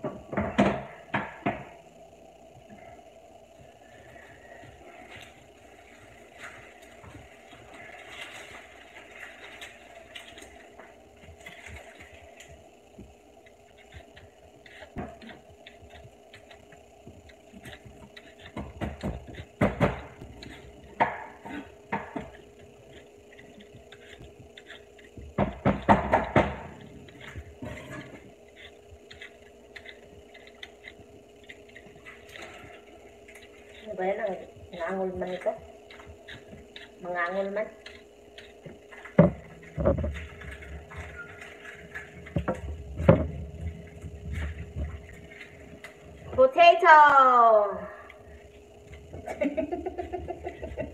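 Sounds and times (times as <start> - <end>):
faint hum: 0.0 - 50.9
knife clicking and scraping bowl: 13.4 - 34.0, 34.8 - 39.2.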